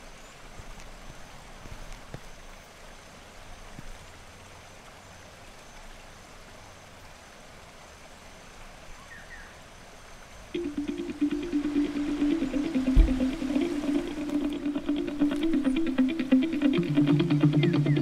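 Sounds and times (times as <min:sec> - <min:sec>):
flowing stream: 0:00.0 - 0:18.0.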